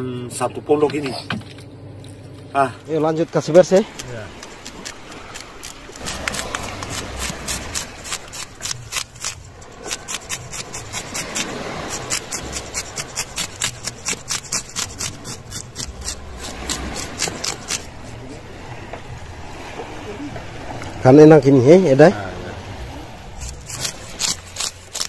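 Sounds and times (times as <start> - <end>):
knife scraping fish scales: 3.6 - 18.4, 23.3 - 25.0.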